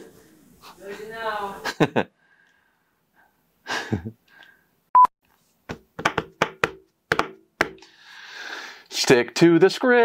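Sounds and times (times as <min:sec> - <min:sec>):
sharp knocks: 0:05.7 - 0:07.8.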